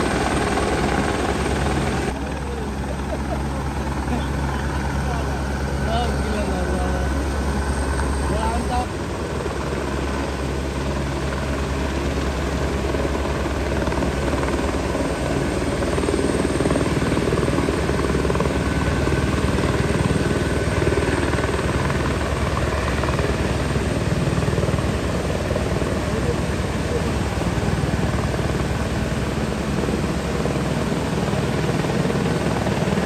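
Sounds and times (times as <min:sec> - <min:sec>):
helicopter rotor chop: 0:00.0 - 0:33.0.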